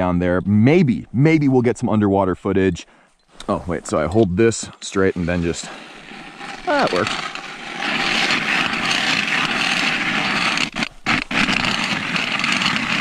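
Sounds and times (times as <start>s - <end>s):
ice auger grinding ice: 4.6s - 13.0s.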